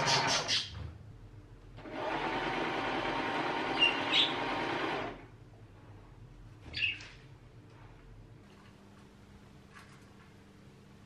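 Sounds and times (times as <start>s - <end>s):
sewing machine running: 0.0s - 0.4s, 1.8s - 5.3s
budgie calling: 0.0s - 0.8s, 6.7s - 7.1s.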